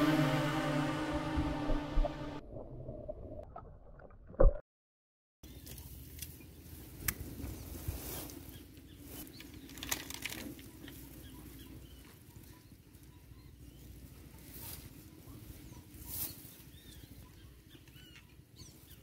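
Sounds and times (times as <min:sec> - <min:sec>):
steady low rumble: 0:00.0 - 0:03.2
rustling in grass: 0:05.5 - 0:12.2, 0:13.8 - 0:17.1.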